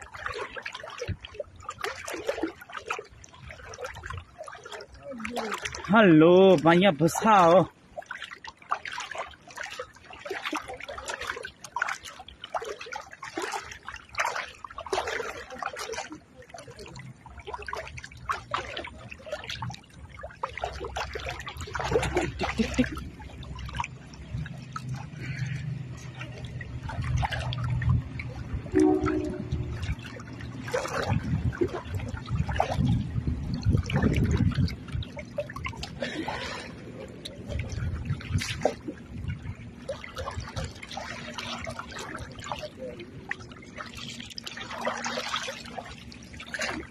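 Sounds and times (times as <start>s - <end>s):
people wading through water: 0.0s - 46.9s
low rumble: 20.9s - 44.9s.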